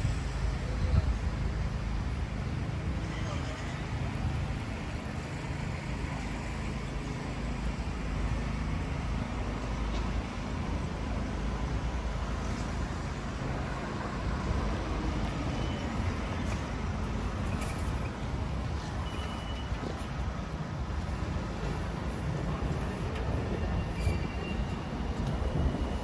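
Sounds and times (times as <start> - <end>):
city traffic rumble: 0.0 - 26.0.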